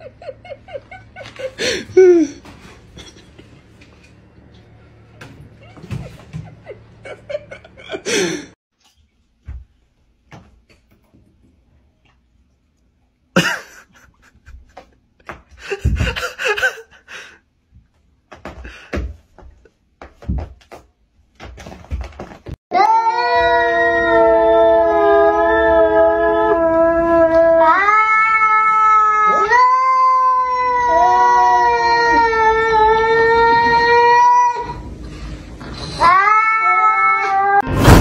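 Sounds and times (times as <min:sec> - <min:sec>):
short knocks and scuffs: 0:18.3 - 0:22.6
cat yowling: 0:22.7 - 0:34.8, 0:35.9 - 0:37.6.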